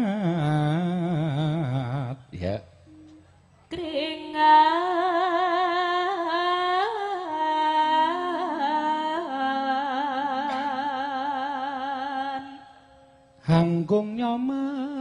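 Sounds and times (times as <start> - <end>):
woman singing unaccompanied: 3.7 - 13.0.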